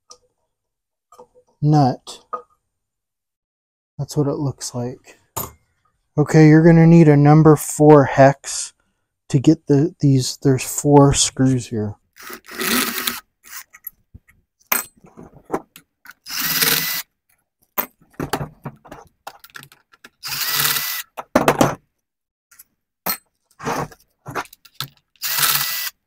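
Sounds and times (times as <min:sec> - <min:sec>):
cordless drill whining: 0:12.2 - 0:13.7, 0:16.2 - 0:17.0, 0:20.2 - 0:21.1, 0:25.2 - 0:26.0.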